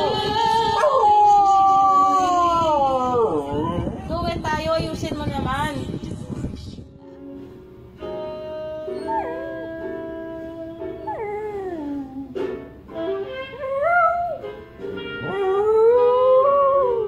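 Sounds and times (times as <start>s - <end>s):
music from television: 0.0s - 2.4s, 4.9s - 17.0s
dog howling: 0.0s - 3.9s, 9.0s - 10.4s, 15.2s - 17.0s.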